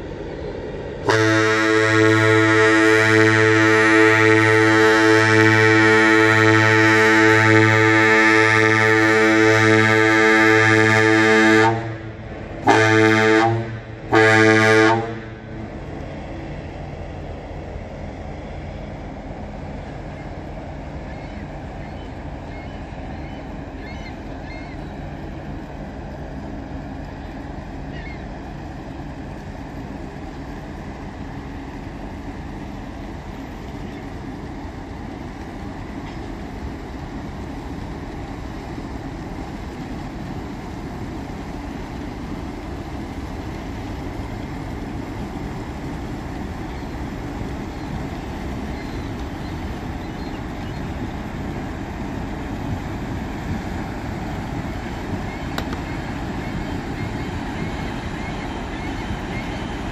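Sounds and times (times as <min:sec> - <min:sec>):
low steady rumble: 0:00.0 - 0:59.9
ship horn blasts: 0:01.0 - 0:16.6, 0:45.0 - 0:59.9.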